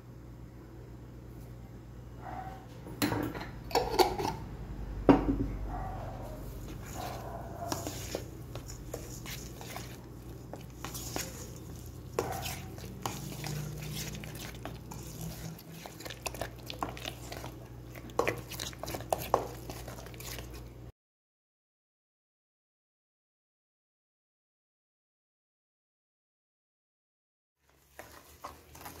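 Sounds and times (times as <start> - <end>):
scraping and squelching paste: 6.1 - 20.9, 27.6 - 29.0.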